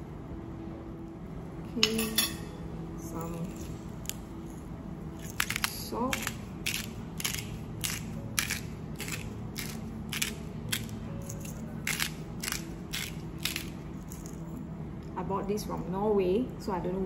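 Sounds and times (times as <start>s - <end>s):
salt grinder crunching: 5.2s - 14.4s.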